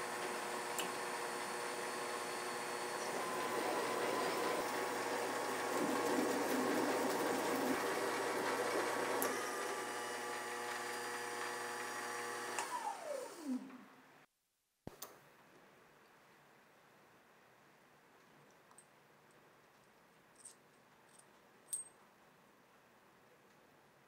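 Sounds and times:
lathe motor whine: 0:00.0 - 0:13.9
click: 0:00.8 - 0:01.0, 0:12.5 - 0:12.8.

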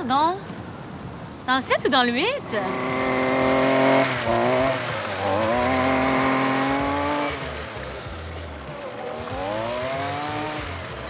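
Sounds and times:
lawn mower engine running: 0:02.4 - 0:11.0.

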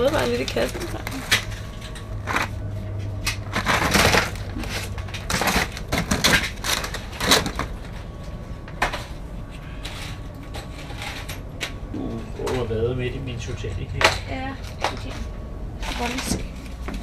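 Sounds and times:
plastic packs crinkling and clattering: 0:00.0 - 0:02.6, 0:03.2 - 0:09.2.

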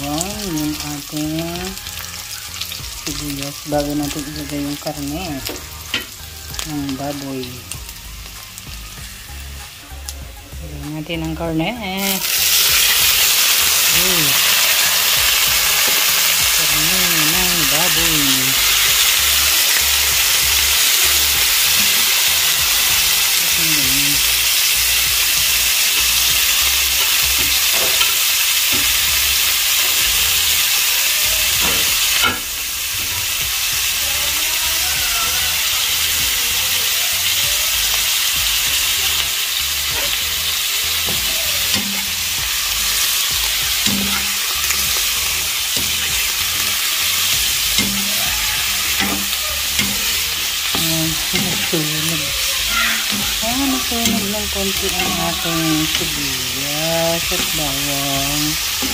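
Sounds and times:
pork sizzling in hot oil: 0:00.0 - 0:58.9
spoon stirring in a wok: 0:39.9 - 0:56.2.

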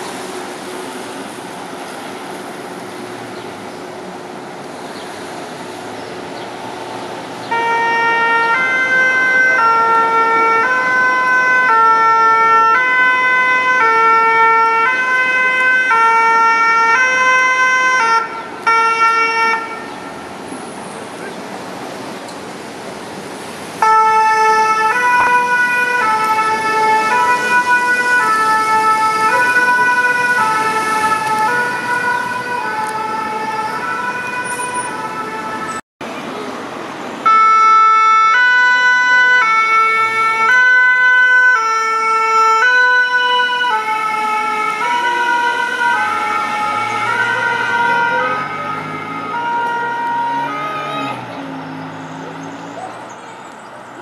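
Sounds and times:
two-tone ambulance siren: 0:07.4 - 0:20.3, 0:23.8 - 0:35.8, 0:37.2 - 0:53.2.

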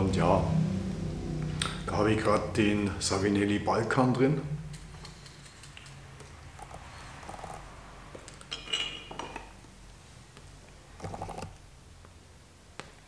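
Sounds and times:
metal tin clinking: 0:08.4 - 0:09.5.

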